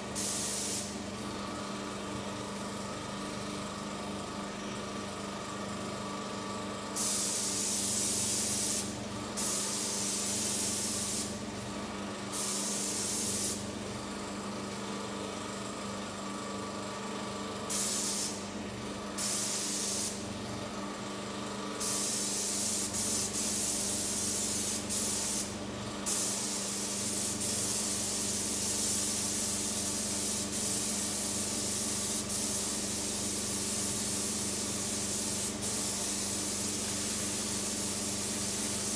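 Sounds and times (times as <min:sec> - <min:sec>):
paint spray gun hissing: 0:00.0 - 0:00.9, 0:07.0 - 0:11.4, 0:12.3 - 0:13.7, 0:17.7 - 0:18.5, 0:19.2 - 0:20.2, 0:21.8 - 0:38.9.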